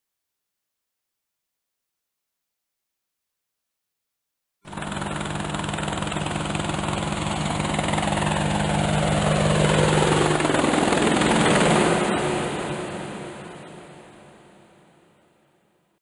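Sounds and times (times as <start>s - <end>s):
helicopter flying past: 4.7s - 15.1s.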